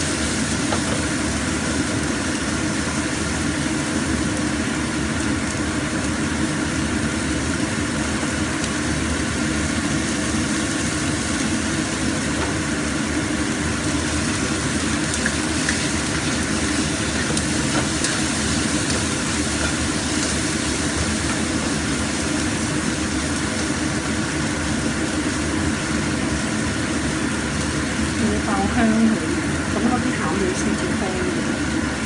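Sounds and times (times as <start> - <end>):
garlic sizzling in oil: 0.0 - 32.0
steady hum: 0.0 - 32.0
spatula stirring in wok: 14.0 - 24.0.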